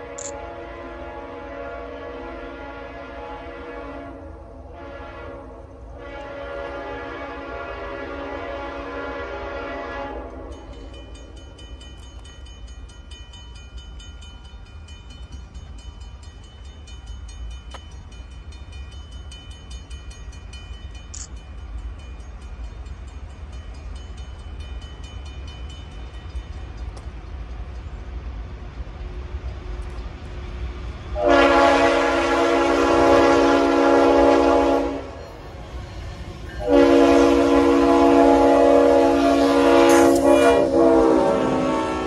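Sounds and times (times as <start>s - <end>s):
distant train horn: 0.0s - 11.1s, 31.1s - 42.0s
train rumbling: 0.0s - 42.0s.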